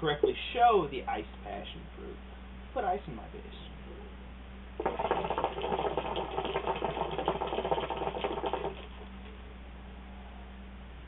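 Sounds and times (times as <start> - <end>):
hookah water bubbling: 4.8 - 9.1.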